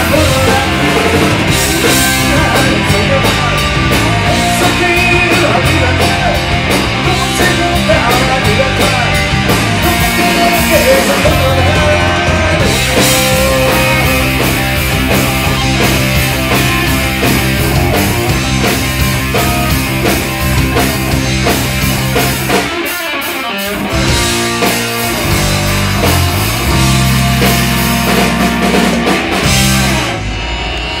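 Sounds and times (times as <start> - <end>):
bass: 0.0 - 31.0
drum kit: 0.0 - 31.0
electric guitar: 0.0 - 31.0.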